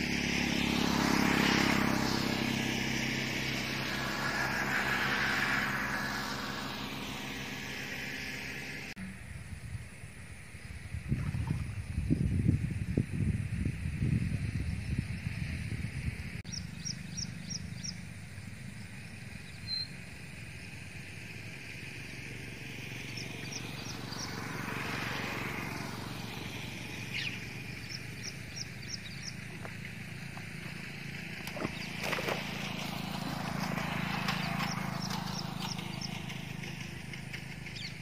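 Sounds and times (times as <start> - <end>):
broad rushing sound: 0.0 - 9.0
wind on microphone: 9.2 - 16.5
bird chirping: 16.5 - 20.1, 23.0 - 24.4, 26.8 - 29.9, 33.8 - 38.0.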